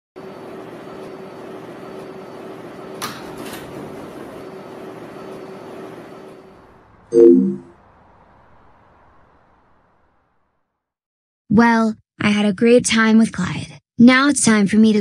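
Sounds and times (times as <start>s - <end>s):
subway car hum: 0.2s - 10.9s
sliding doors clunking open: 2.0s - 7.1s.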